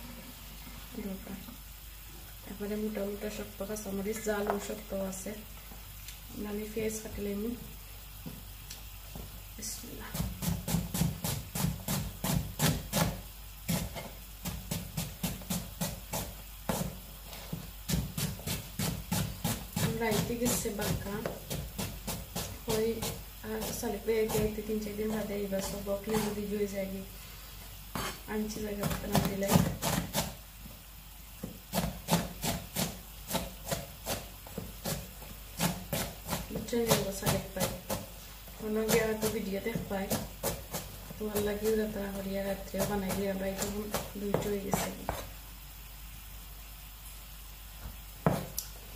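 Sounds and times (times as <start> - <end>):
knife chopping on cutting board: 10.1 - 17.0, 17.9 - 26.4, 27.9 - 28.2, 28.8 - 30.4, 31.4 - 38.1, 38.8 - 41.8, 42.7 - 45.3, 48.2 - 48.6.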